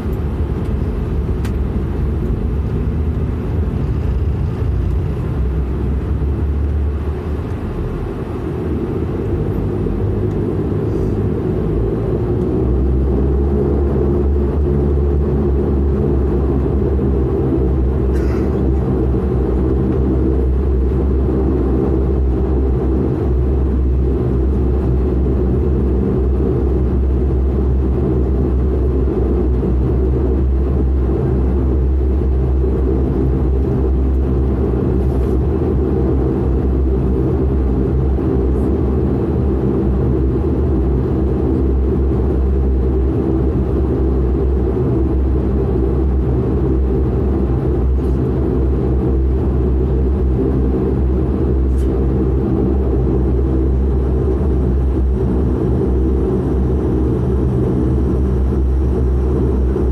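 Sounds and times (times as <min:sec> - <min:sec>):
turboprop engine drone in cabin: 0:00.0 - 0:59.9.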